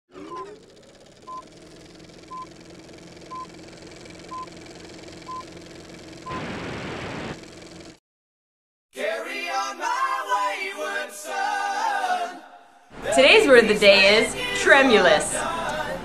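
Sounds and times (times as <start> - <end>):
loud static hiss: 6.3 - 7.4.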